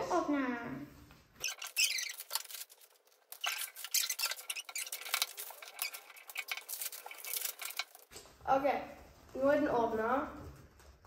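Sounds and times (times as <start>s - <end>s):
plastic capsules crackling: 1.4s - 8.1s.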